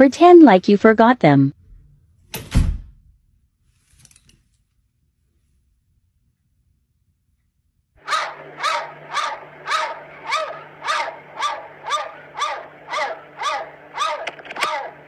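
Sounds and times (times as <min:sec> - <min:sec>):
cat meowing: 0:08.1 - 0:15.0.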